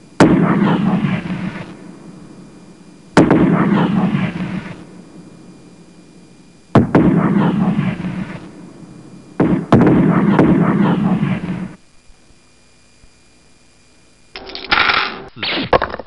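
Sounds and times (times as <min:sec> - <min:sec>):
loud bangs with crackling rumble: 0:00.0 - 0:11.8.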